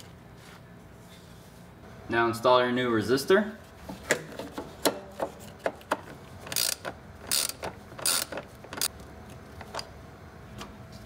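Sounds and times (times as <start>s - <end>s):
ratcheting buzzes: 6.4s - 9.0s
ratchet wrench clicks: 6.5s - 8.9s.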